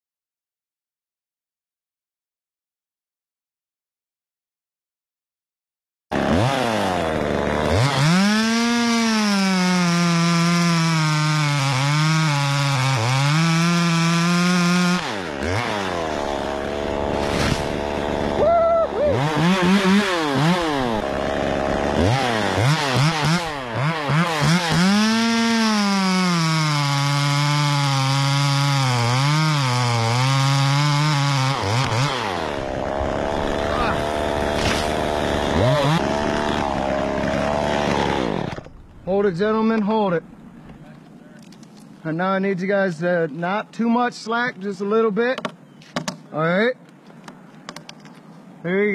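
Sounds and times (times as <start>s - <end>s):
chainsaw revving and cutting: 6.1s - 39.6s.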